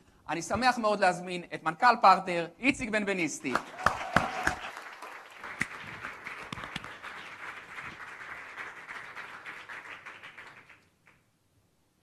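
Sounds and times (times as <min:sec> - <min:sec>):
audience applauding: 0:03.5 - 0:11.2.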